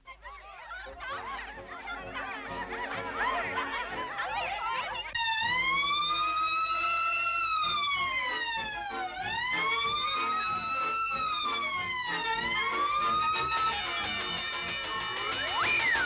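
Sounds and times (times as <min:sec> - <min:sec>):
high cartoon voices chattering: 0:00.1 - 0:05.2
police siren wailing: 0:02.0 - 0:16.0
orchestral music: 0:08.0 - 0:16.0.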